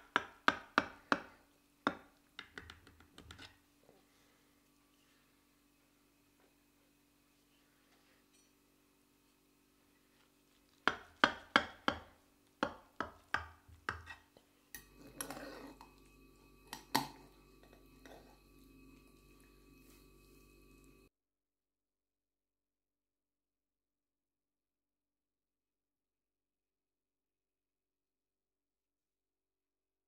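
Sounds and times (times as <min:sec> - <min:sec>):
spatula clinking on glass dish: 0:14.8 - 0:18.5.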